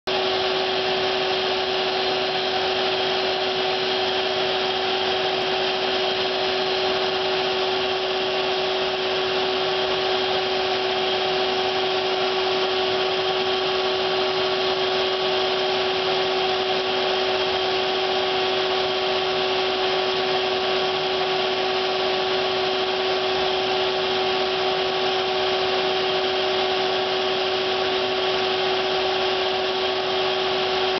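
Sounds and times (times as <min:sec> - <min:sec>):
machinery humming: 0:00.1 - 0:30.9.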